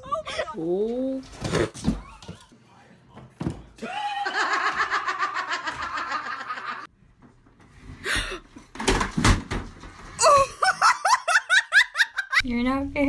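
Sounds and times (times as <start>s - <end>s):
person laughing: 3.8s - 6.9s, 10.2s - 12.4s
woman laughing: 3.8s - 6.9s, 10.2s - 12.4s.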